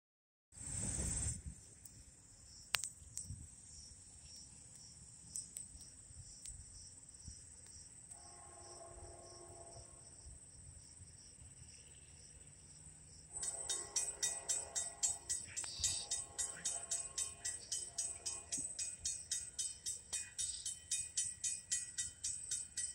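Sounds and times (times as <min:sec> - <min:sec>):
insects chirring: 0:00.6 - 0:22.9
faint chord of steady tones: 0:08.0 - 0:10.5, 0:11.4 - 0:22.9
rhythmic ringing strikes: 0:13.3 - 0:22.9.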